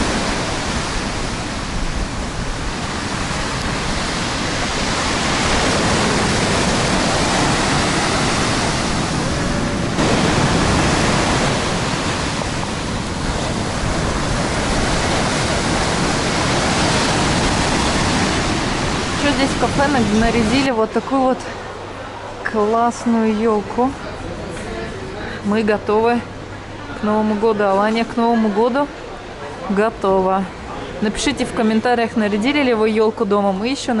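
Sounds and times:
wind buffeting microphone: 0.0s - 20.8s
heavy surf breaking on beach: 0.0s - 21.9s.

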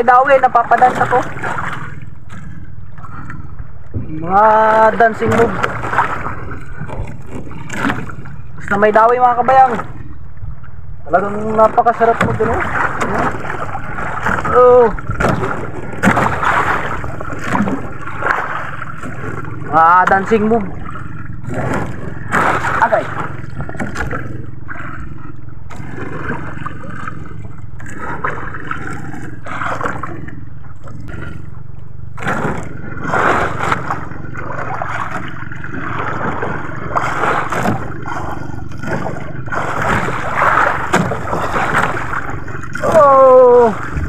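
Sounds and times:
sea noise: 0.0s - 44.0s
water splashing: 0.0s - 44.0s
wind: 0.0s - 44.0s
fish splashing at surface: 20.8s - 25.0s, 32.2s - 44.0s
man crying out: 42.8s - 43.8s.

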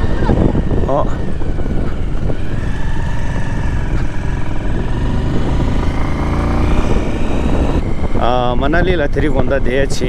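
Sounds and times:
motorcycle engine rumbling: 0.0s - 10.0s.

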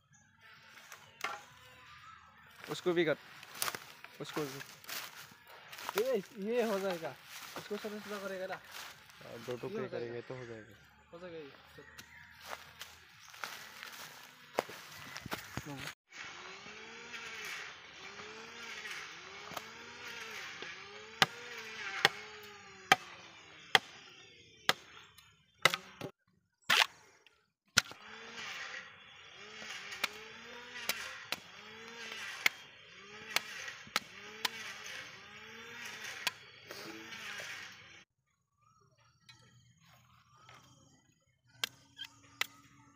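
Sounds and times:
machete chopping bamboo: 1.2s - 1.5s, 19.4s - 24.0s, 24.7s - 24.9s, 25.6s - 26.1s, 26.7s - 27.0s, 27.7s - 28.0s, 29.6s - 32.6s, 33.2s - 35.0s, 35.6s - 37.1s.

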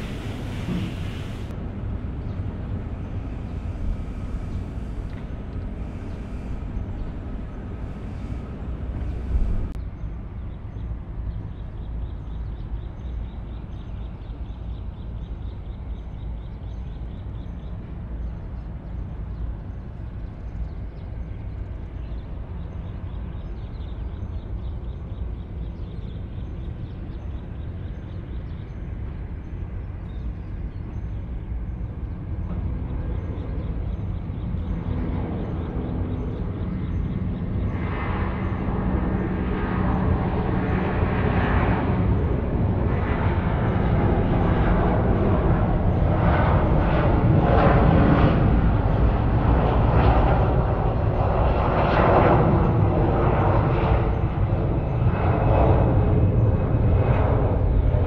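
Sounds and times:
jet engines rumbling: 0.0s - 11.3s, 28.9s - 58.0s.

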